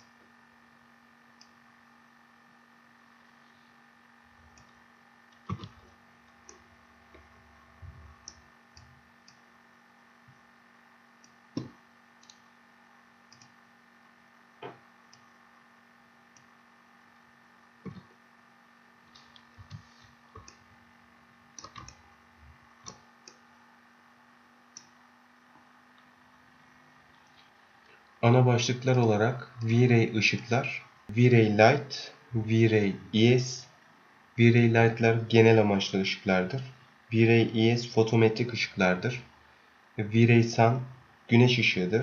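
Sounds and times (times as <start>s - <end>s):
faint electrical hum: 0.0s - 42.0s
computer mouse clicking: 4.5s - 5.9s, 8.2s - 9.4s, 11.2s - 12.4s, 13.3s - 13.6s, 17.8s - 18.1s, 21.6s - 22.0s, 24.7s - 24.9s.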